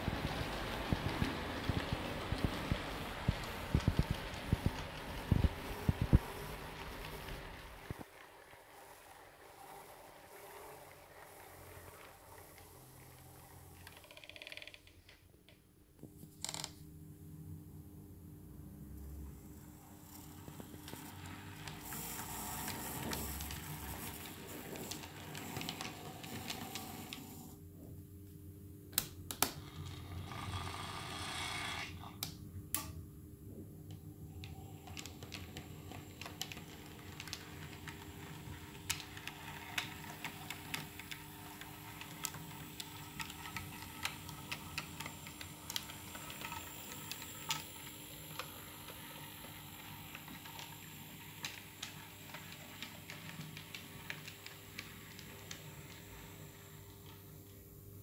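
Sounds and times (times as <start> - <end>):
model train wheels clicking: 0.0 - 14.8, 20.0 - 27.6, 34.4 - 56.8.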